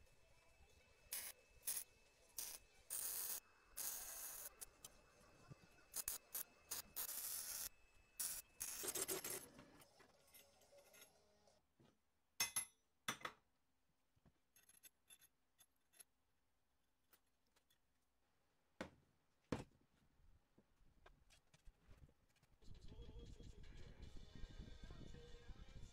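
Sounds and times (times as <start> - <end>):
welding arc crackling: 6.0 - 9.0.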